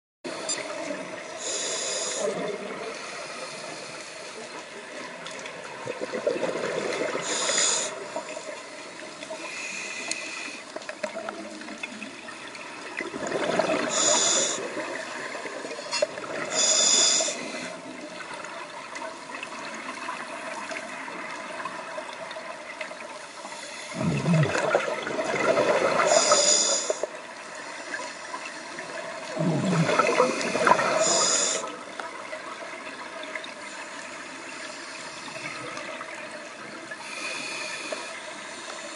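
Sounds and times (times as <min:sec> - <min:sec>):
steady watery hiss: 0:00.3 - 0:38.9
regulator hiss: 0:01.4 - 0:02.3, 0:07.2 - 0:10.7, 0:13.9 - 0:14.8, 0:15.9 - 0:17.8, 0:26.0 - 0:28.6, 0:30.2 - 0:31.7
exhaled bubbles rushing: 0:05.6 - 0:07.3, 0:12.8 - 0:16.6, 0:23.9 - 0:26.4, 0:28.9 - 0:32.8.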